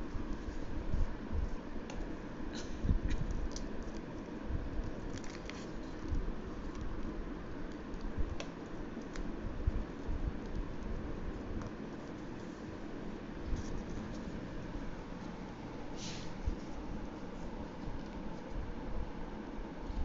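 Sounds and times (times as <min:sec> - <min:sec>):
low background rumble: 0:00.0 - 0:20.0
paper crackling as it is creased: 0:03.3 - 0:12.7.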